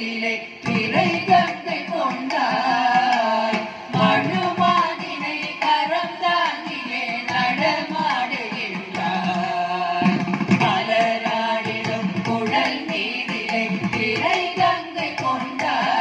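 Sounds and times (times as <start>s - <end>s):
voices singing devotional song: 0.0s - 16.0s
hand drum strokes: 8.5s - 15.7s.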